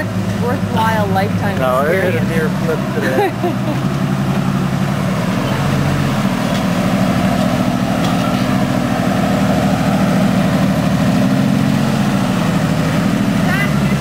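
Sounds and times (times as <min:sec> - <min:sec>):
truck engine running at low revs: 0:00.0 - 0:14.0.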